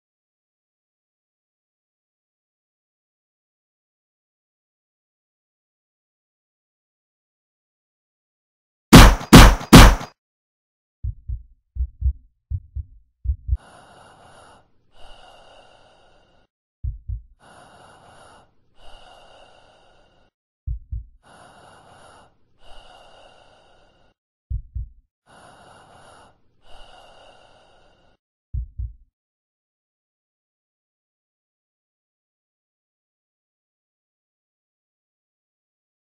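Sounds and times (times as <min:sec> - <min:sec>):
heartbeat thumps: 0:09.0 - 0:10.1, 0:11.0 - 0:13.6, 0:16.8 - 0:17.4, 0:20.7 - 0:21.2, 0:24.5 - 0:25.0, 0:28.5 - 0:29.0
slow breathing: 0:13.5 - 0:16.5, 0:17.4 - 0:20.4, 0:21.2 - 0:24.2, 0:25.3 - 0:28.2.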